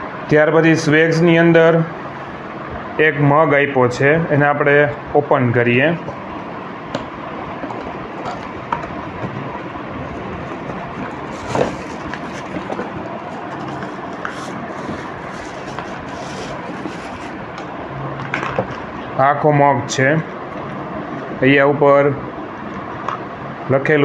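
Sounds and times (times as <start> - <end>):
cardboard and paper rustling: 7.6 - 17.4.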